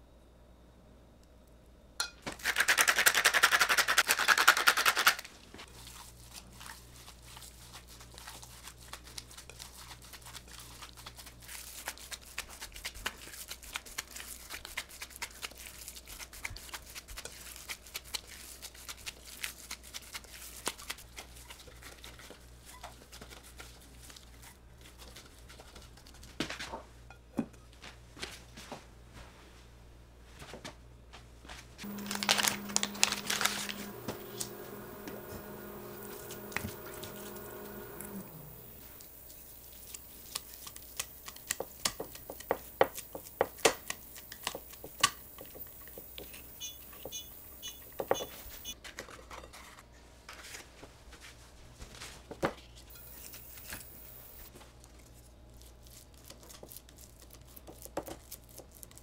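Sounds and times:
pepper mill grinding: 0:02.3 - 0:06.8, 0:31.8 - 0:48.7, 0:52.9 - 0:54.5
hand kneading minced meat: 0:02.3 - 0:26.7, 0:31.8 - 0:47.3.

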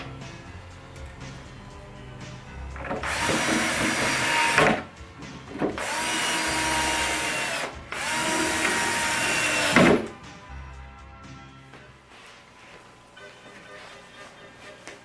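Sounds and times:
cordless drill driving screws: 0:02.9 - 0:04.8, 0:05.8 - 0:10.0.

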